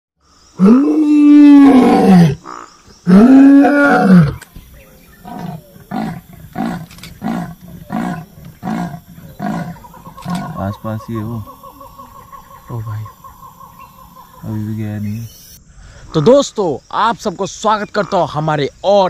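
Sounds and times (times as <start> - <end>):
tiger roaring: 0.6 - 11.6
tiger grunting: 0.6 - 13.5.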